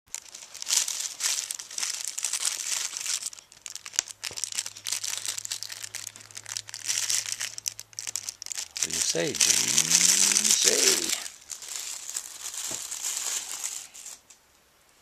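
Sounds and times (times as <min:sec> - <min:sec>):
plastic bag crinkling: 0:00.1 - 0:14.3.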